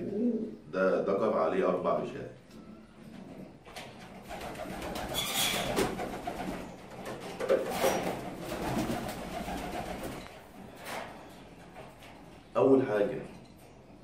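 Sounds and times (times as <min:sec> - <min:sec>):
pigeons cooing: 0:00.0 - 0:00.8, 0:02.5 - 0:11.8.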